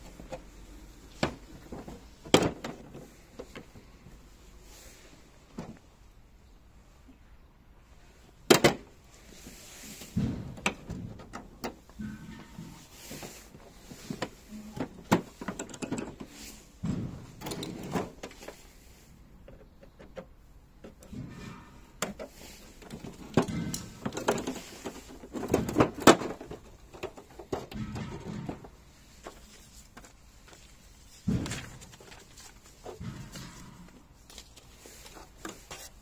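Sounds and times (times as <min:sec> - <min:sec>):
paper and packaging rustling: 0:22.1 - 0:36.0.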